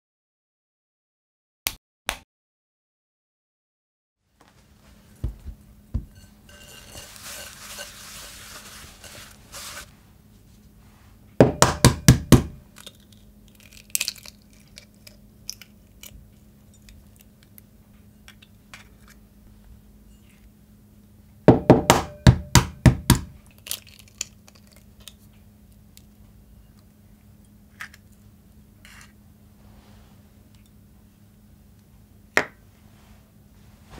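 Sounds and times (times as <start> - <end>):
glass bowls clinking: 6.0 - 9.9
cloth wiping: 6.5 - 10.0
egg shell knocking: 11.4 - 12.6.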